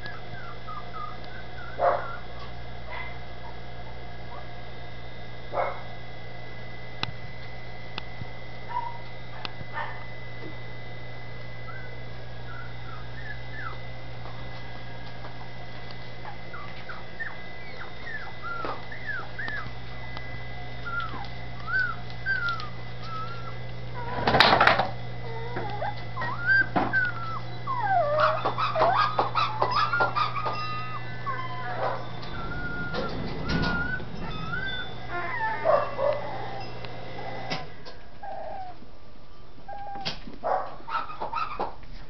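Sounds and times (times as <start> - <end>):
puppies whimpering and yipping: 0.0 - 4.0, 11.6 - 14.4, 16.2 - 19.8, 20.8 - 38.8, 39.7 - 41.8
steady low hum: 0.0 - 39.7.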